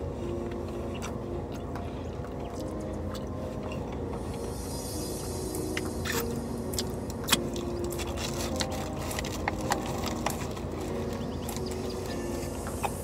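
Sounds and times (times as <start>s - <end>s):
car cabin engine hum: 0.0s - 13.0s
paper bag crinkling: 7.8s - 12.2s.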